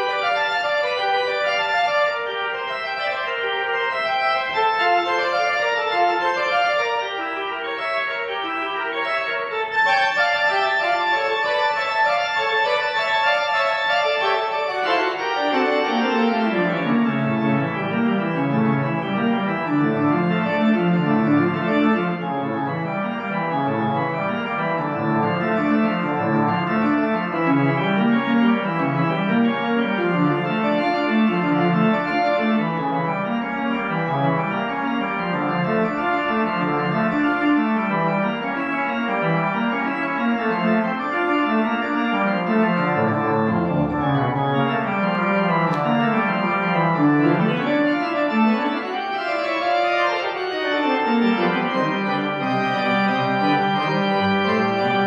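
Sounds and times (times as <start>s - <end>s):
organ music: 0.0s - 55.0s.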